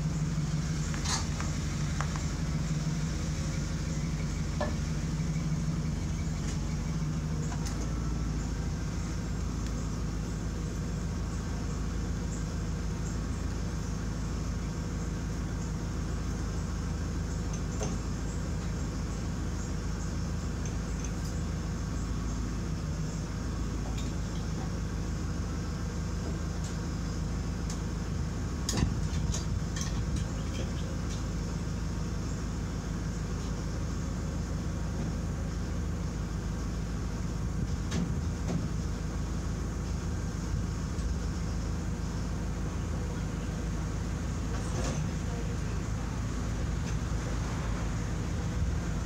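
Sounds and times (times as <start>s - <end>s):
low mechanical hum: 0.0s - 49.0s
metal clanks on truck bed: 28.7s - 31.3s.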